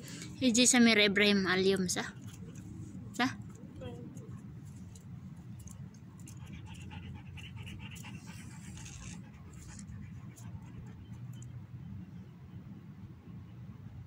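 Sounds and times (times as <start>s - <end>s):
steady low rumble: 0.0s - 14.0s
dog panting: 1.8s - 11.4s.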